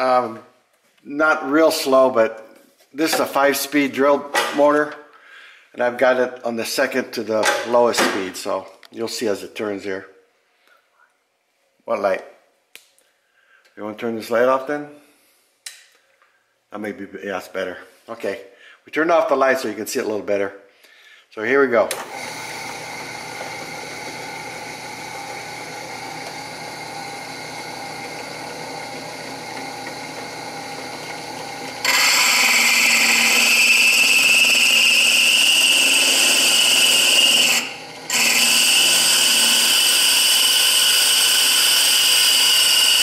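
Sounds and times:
drill press running: 21.9s - 43.0s
hole saw grinding ceramic: 22.2s - 43.0s.

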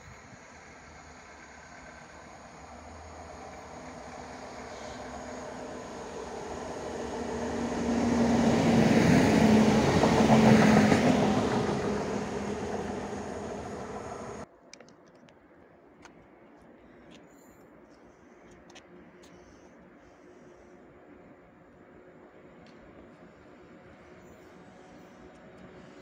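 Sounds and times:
steady engine hum: 0.0s - 14.5s
train running past: 0.0s - 14.5s.

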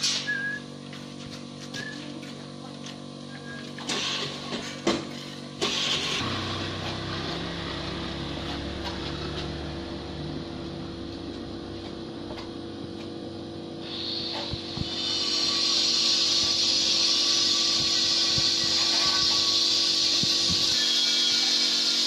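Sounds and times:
hiss: 3.8s - 4.6s, 5.6s - 6.3s, 13.8s - 22.0s
passing vehicle engine: 6.1s - 12.6s.

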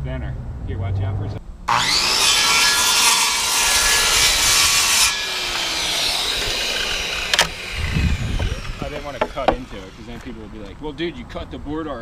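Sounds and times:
saw motor whine spinning down: 1.7s - 10.8s
circular saw cutting wood: 1.7s - 10.9s.

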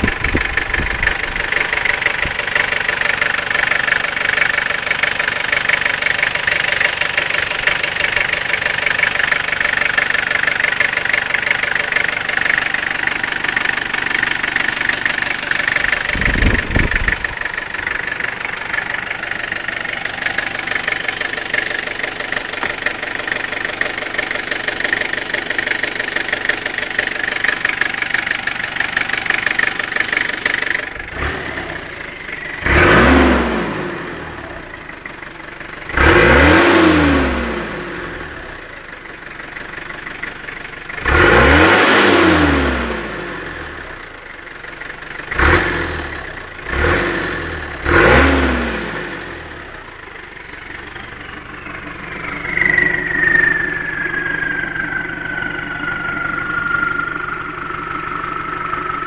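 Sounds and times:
diesel engine idling and revving: 0.0s - 59.0s.

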